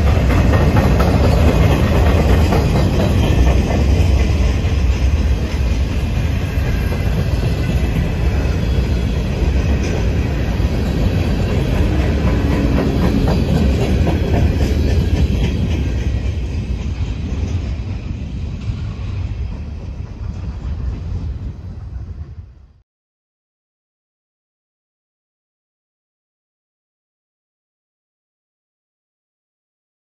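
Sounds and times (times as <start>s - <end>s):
train wheels rumbling on rails: 0.0s - 22.8s.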